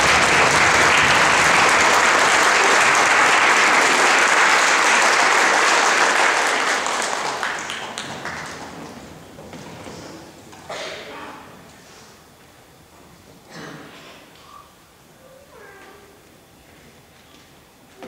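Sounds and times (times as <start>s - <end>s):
audience applause: 0.0s - 9.1s.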